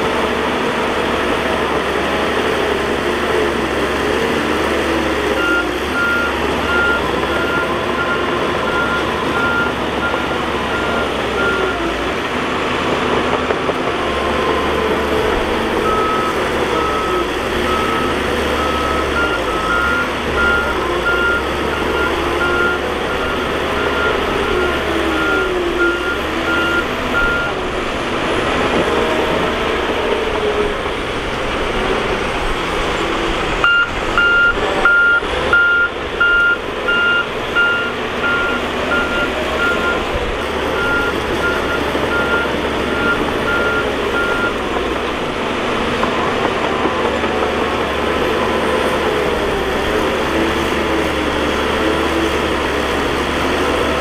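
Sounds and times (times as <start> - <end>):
bulldozer diesel engine running: 0.0 - 54.0
reversing alarm beeping: 4.0 - 12.1, 14.3 - 27.6, 33.6 - 44.8.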